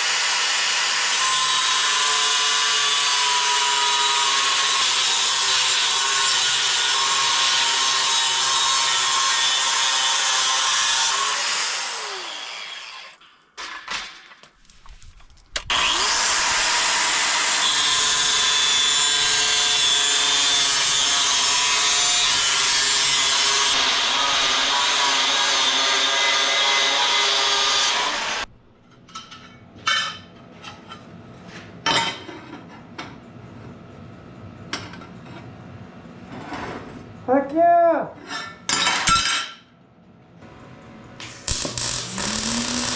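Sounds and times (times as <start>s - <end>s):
angle grinder cutting steel: 0.0s - 13.2s, 15.7s - 28.5s, 41.2s - 42.9s.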